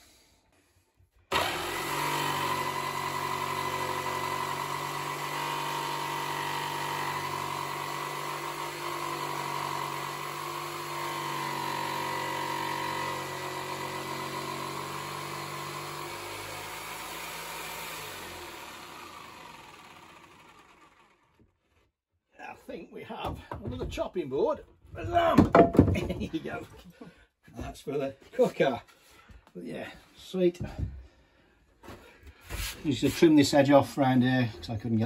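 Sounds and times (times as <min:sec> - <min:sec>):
jigsaw cutting wood: 0:01.3 - 0:21.8.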